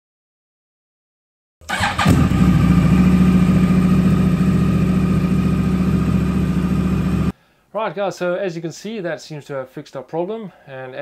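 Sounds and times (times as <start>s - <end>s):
motorcycle engine cranking: 1.6s - 2.8s
motorcycle engine idling: 1.7s - 7.3s.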